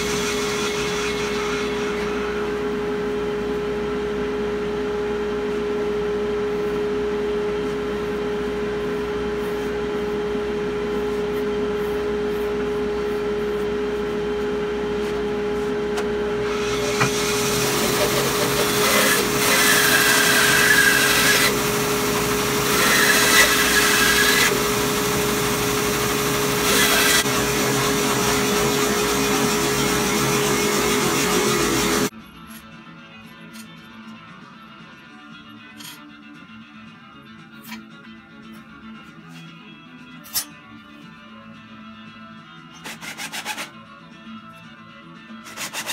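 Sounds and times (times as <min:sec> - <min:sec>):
bandsaw humming: 0:00.0 - 0:02.6, 0:16.3 - 0:32.1
saw blade rasping through wood: 0:16.5 - 0:21.6, 0:22.6 - 0:24.6, 0:26.6 - 0:32.1, 0:42.8 - 0:43.7, 0:45.4 - 0:45.9.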